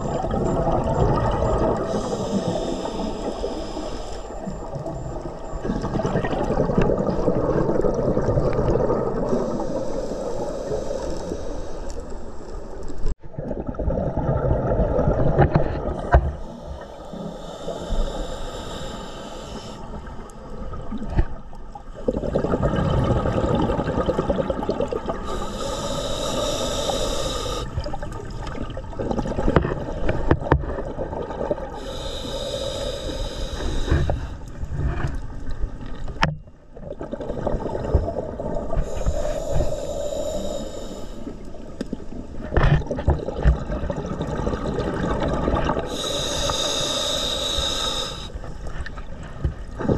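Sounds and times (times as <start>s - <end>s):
bubbles gurgling underwater: 0.0s - 2.7s, 4.5s - 9.7s, 13.2s - 16.6s, 20.6s - 25.4s, 27.8s - 31.8s, 34.6s - 39.2s, 41.6s - 46.2s
scuba regulator hissing breath: 1.7s - 5.6s, 9.3s - 12.6s, 16.4s - 20.0s, 25.2s - 27.8s, 31.7s - 34.6s, 38.7s - 41.6s, 45.8s - 48.5s.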